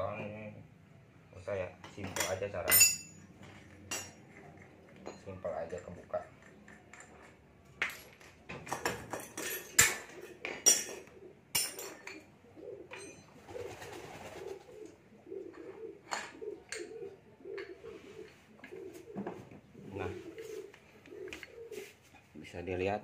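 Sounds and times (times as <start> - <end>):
metal clinks of wrenches: 1.9 - 5.9, 12.9 - 13.3
bird cooing: 9.9 - 22.3.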